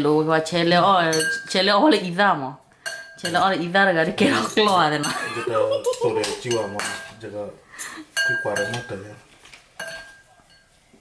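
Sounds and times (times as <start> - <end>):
spoon clinking against ceramic bowl: 1.0 - 1.6, 2.8 - 3.5, 4.4 - 7.2, 7.8 - 9.1, 9.8 - 10.8
man talking: 5.3 - 7.6, 8.3 - 9.3.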